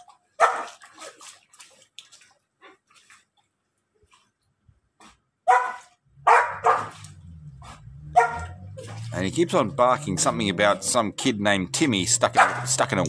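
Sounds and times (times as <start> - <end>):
dog barking: 0.4 - 0.8, 5.4 - 8.6, 12.3 - 12.7.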